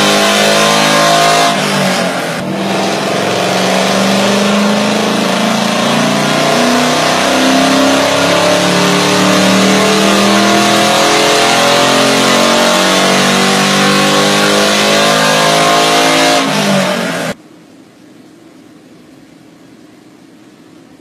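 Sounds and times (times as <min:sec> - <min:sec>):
engine at full throttle revving: 0:00.0 - 0:17.4.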